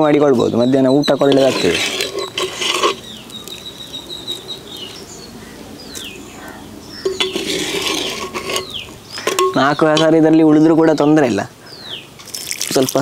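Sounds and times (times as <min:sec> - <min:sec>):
birds calling: 0:00.0 - 0:13.0
steel cup and pan clanking: 0:01.2 - 0:03.1, 0:07.0 - 0:10.2.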